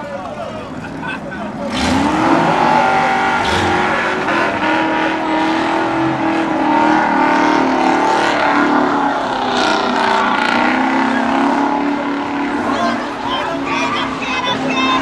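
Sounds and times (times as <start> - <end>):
car engine at high revs: 1.5 - 15.0.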